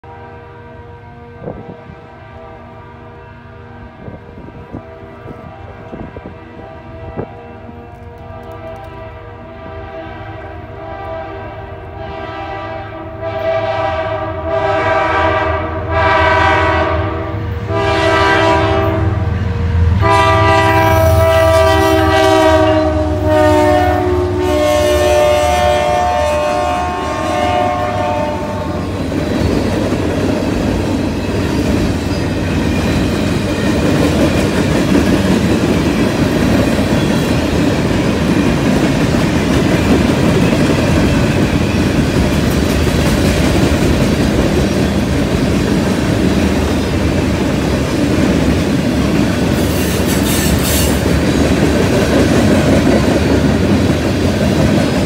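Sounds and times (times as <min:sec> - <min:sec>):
locomotive horn blasts: 0:00.0 - 0:28.9.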